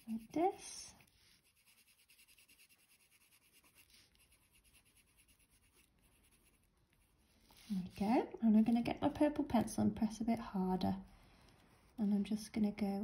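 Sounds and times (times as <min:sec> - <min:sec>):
pencil scratching on paper: 0:00.0 - 0:08.3.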